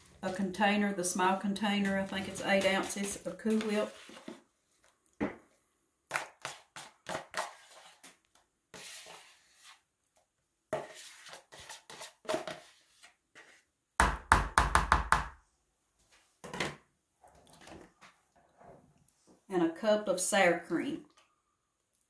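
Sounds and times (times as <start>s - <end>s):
spatula scraping plastic tub: 0.0s - 4.5s, 6.1s - 9.9s, 10.8s - 13.7s.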